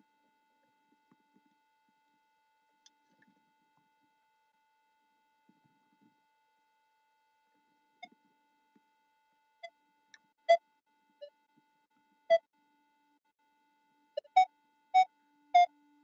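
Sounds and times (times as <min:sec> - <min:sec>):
faint steady tone: 0:00.0 - 0:16.0
metal detector beeps: 0:14.2 - 0:15.7.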